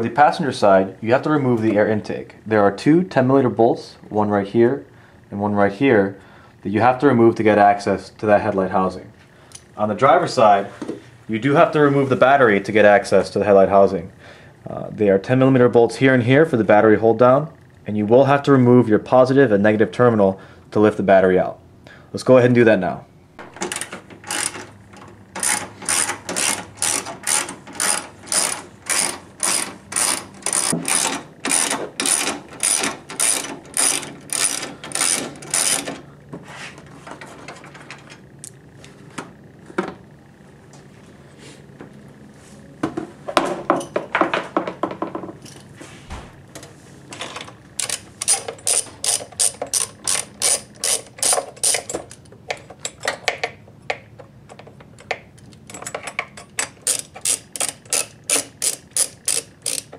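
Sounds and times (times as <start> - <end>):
ratchet wrench clicking: 23.6 - 36.0, 47.8 - 53.5, 55.7 - 59.9.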